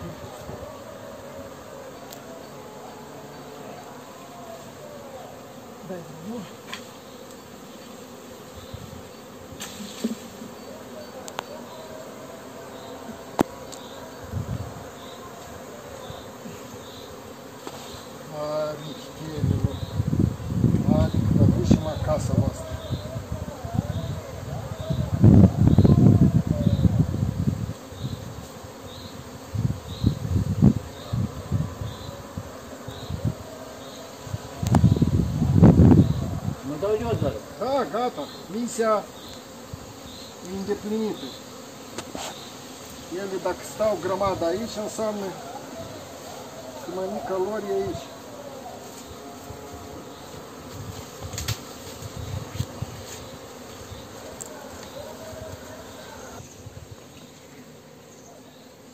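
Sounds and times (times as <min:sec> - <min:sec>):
bee swarm buzzing: 0:00.0 - 0:58.9
bees flying close by: 0:00.0 - 0:58.9
rustling and bumping in branches: 0:50.3 - 0:55.6.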